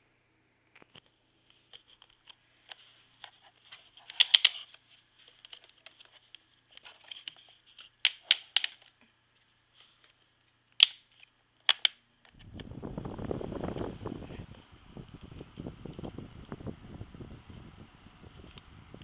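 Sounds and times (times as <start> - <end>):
plastic fan grille clicking: 4.0 - 4.7.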